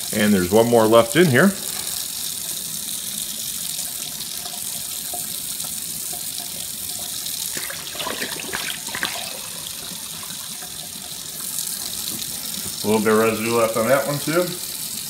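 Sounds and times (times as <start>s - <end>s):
faucet running into steel sink: 0.0s - 15.0s
bottle splashing in water: 7.5s - 9.9s.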